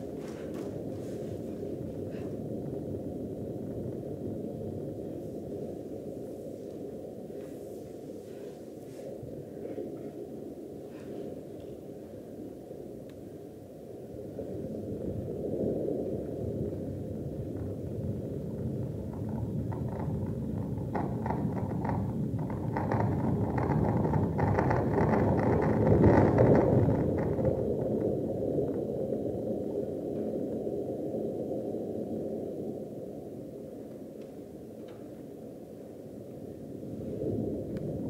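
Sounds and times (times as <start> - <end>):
crackling: 17.5 - 29.4.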